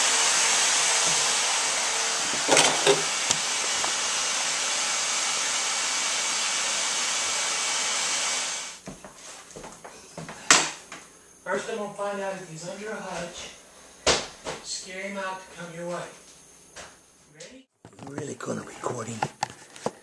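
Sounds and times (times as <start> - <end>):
vacuum cleaner running: 0.0 - 8.8.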